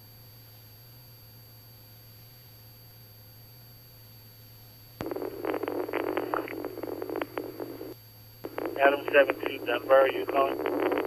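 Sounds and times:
faint radio hum: 0:05.0 - 0:11.0
garbled radio audio: 0:05.0 - 0:11.0
radio transmission click: 0:05.0 - 0:11.0.

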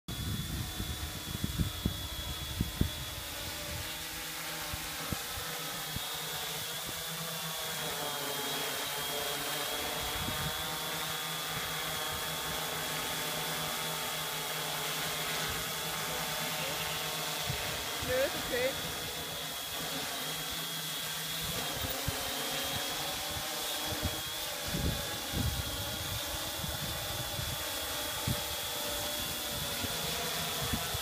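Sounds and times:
wind buffeting microphone: 0:00.1 - 0:04.0, 0:10.0 - 0:10.8, 0:21.4 - 0:28.6
drone propellers buzzing: 0:00.1 - 0:31.0.

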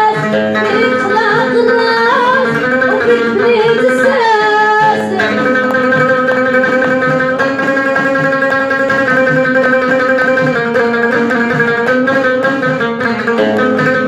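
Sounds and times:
plucked long-necked lute: 0:00.0 - 0:14.0
frame drum beating: 0:00.4 - 0:09.1.

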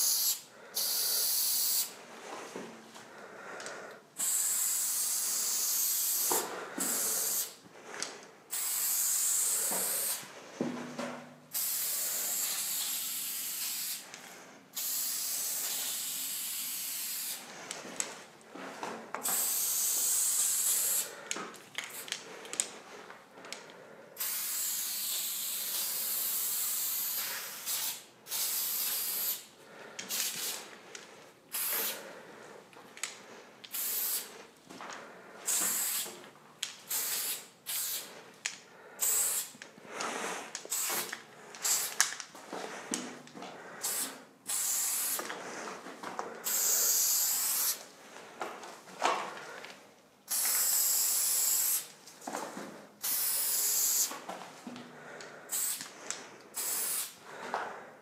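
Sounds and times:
spray paint can hissing: 0:00.0 - 0:01.9, 0:04.2 - 0:07.6, 0:08.5 - 0:10.2, 0:11.5 - 0:14.1, 0:14.8 - 0:17.4, 0:19.2 - 0:21.1, 0:24.2 - 0:29.5, 0:30.1 - 0:30.6, 0:31.5 - 0:32.0, 0:33.7 - 0:34.3, 0:35.5 - 0:36.1, 0:36.9 - 0:38.1, 0:39.0 - 0:39.6, 0:40.6 - 0:42.0, 0:43.8 - 0:45.3, 0:46.4 - 0:47.8, 0:50.3 - 0:51.9, 0:53.0 - 0:54.1, 0:55.5 - 0:55.9, 0:56.6 - 0:57.2.

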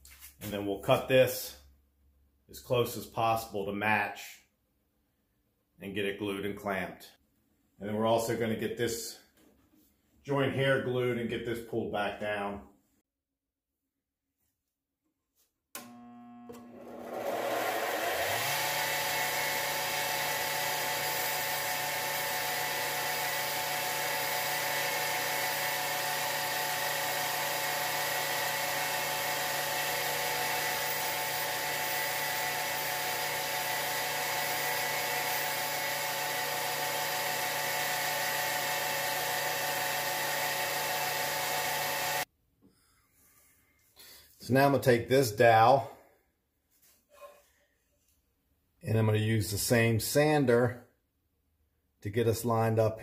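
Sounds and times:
disc sander running: 0:15.8 - 0:42.3.

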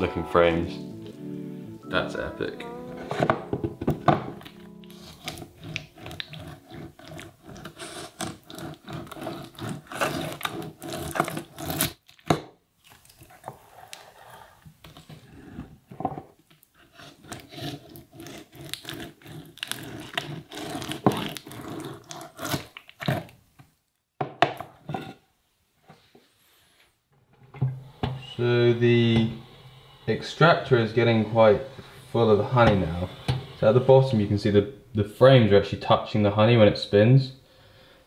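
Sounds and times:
knife scraping wax cappings: 0:04.9 - 0:12.0, 0:16.7 - 0:23.3.

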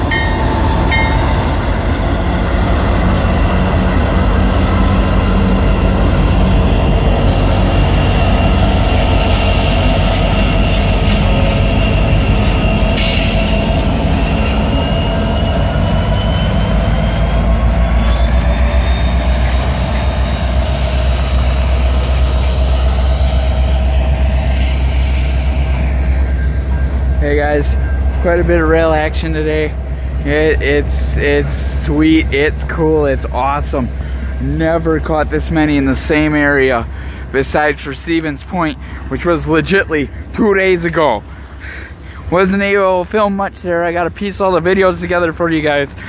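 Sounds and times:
high squeal from train wheels: 0:00.0 - 0:02.4, 0:03.0 - 0:34.5
diesel locomotives rumbling: 0:00.0 - 0:46.0.

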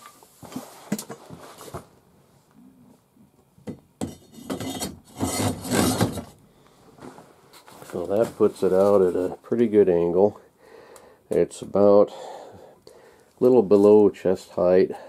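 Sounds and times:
scraping and rubbing: 0:04.2 - 0:06.3.

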